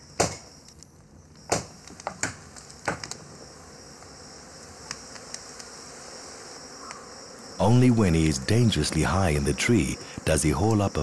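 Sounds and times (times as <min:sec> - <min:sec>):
night insects chirring: 0:00.0 - 0:11.0
sharp knocks on wood: 0:00.2 - 0:00.4.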